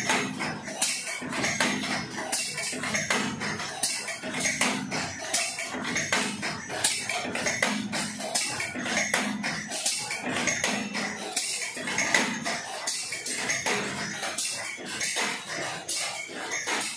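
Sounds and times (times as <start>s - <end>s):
machines running with metallic clatter: 0.0s - 16.9s.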